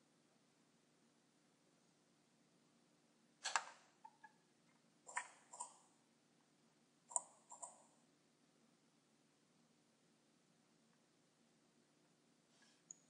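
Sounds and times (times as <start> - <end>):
computer mouse clicks: 3.4 - 4.2, 5.1 - 5.8, 7.1 - 7.9.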